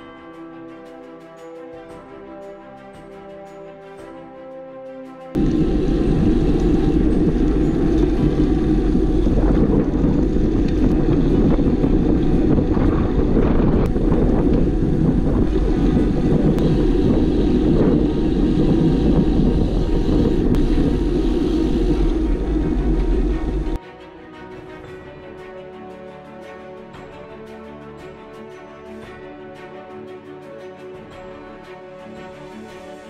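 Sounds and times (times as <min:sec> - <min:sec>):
wind buffeting microphone: 0:05.4 - 0:23.8.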